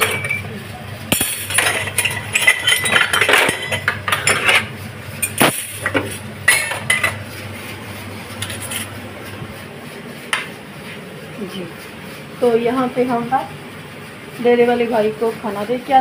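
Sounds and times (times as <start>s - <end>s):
dishes clattering in steel sink: 0.0s - 0.5s, 1.1s - 7.3s.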